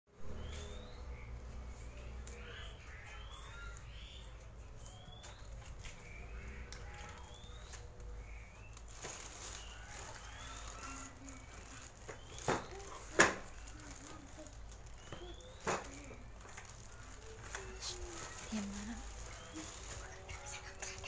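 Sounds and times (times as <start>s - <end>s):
birds chirping: 0.1s - 21.0s
parcel rustling: 7.0s - 21.0s.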